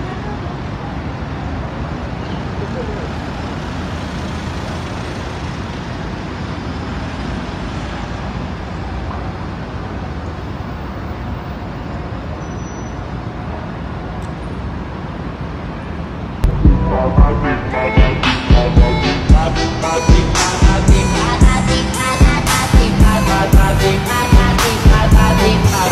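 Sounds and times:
road traffic passing: 0.0 - 25.9
upbeat music with strong beat: 16.4 - 25.9.

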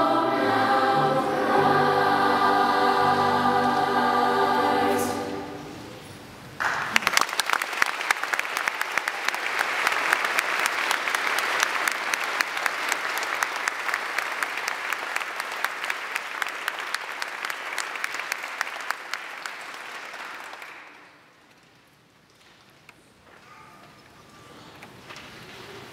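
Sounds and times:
audience applauding: 6.6 - 21.2.

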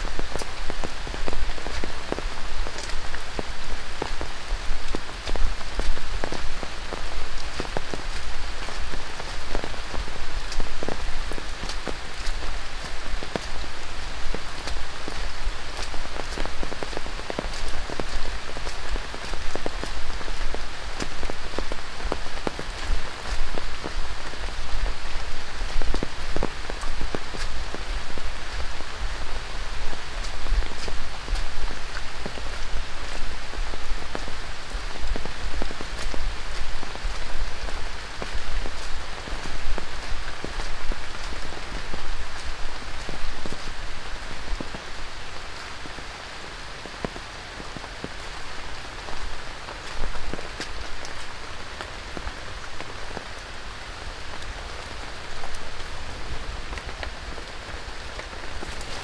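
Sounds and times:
rain hissing: 0.0 - 59.0
raindrops hitting leaves: 0.0 - 59.0.

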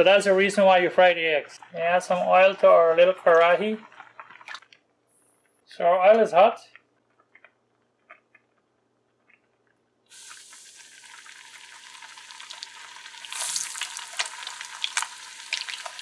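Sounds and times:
egg sizzling in hot oil: 10.1 - 16.0.

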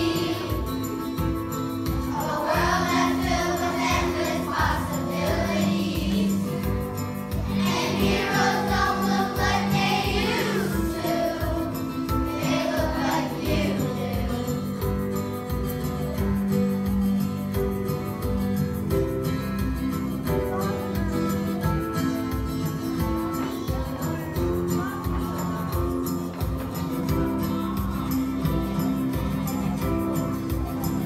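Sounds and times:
children's choir singing: 0.0 - 15.0
accompaniment music with beat: 0.0 - 31.0.

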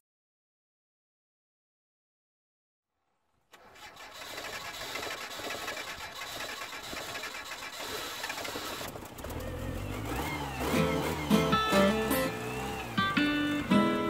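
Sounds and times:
engine idling with mechanical clatter: 3.6 - 13.0.

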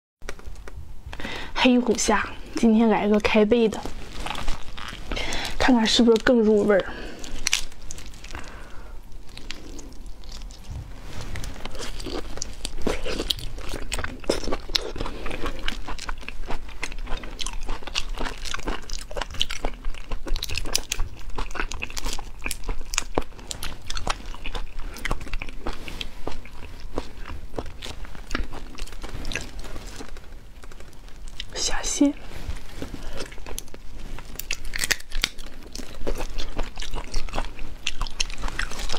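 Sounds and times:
prawn shells crackling and snapping: 0.2 - 1.3, 1.9 - 31.8, 32.4 - 38.9
wet crunching and chewing: 1.9 - 38.9.

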